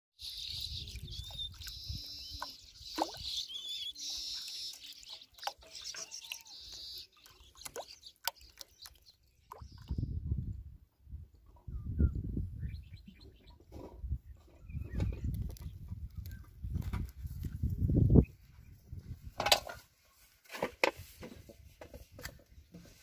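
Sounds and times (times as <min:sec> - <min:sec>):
short bird calls: 0:00.2 - 0:09.0
water splashing and dripping: 0:00.4 - 0:10.0.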